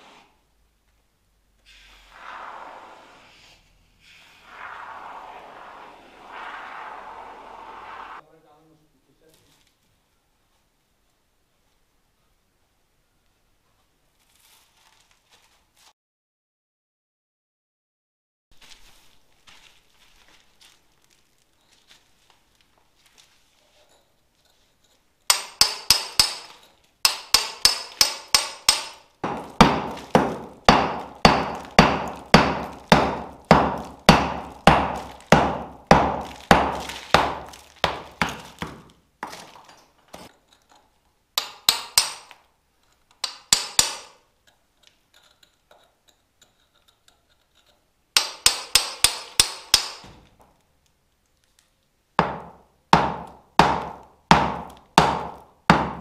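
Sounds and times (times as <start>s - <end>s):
hammer blows: 4.2s - 8.2s, 25.3s - 38.8s.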